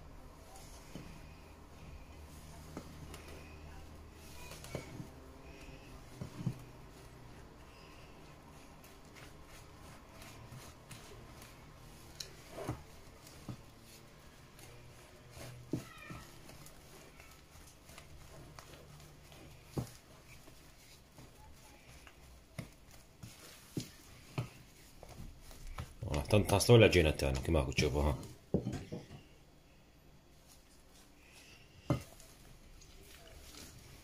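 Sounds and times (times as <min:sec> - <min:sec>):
spatula scraping dough in glass bowl: 0:00.6 - 0:26.2.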